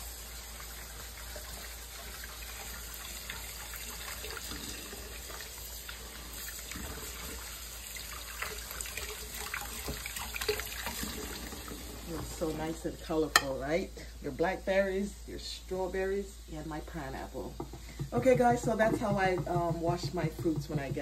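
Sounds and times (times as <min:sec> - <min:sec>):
faucet running into steel sink: 0:00.0 - 0:13.0.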